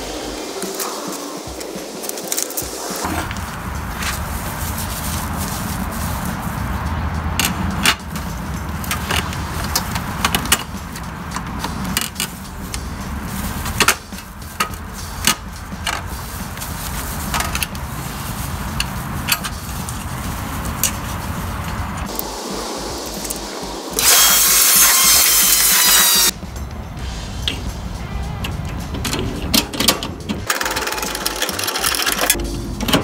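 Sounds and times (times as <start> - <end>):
steady low rumble: 0.0 - 24.8, 26.3 - 30.5
metal parts clicking and clattering: 7.4 - 12.8, 28.6 - 33.0.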